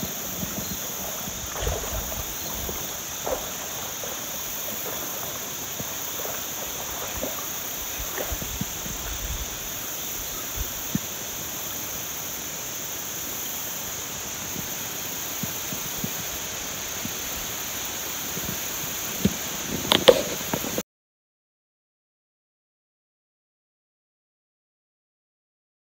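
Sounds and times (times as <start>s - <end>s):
hooves on stony gravel: 0.0s - 9.3s.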